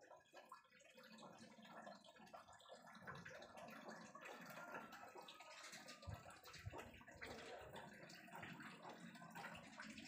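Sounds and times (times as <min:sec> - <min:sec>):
cat lapping water: 0:00.0 - 0:10.0.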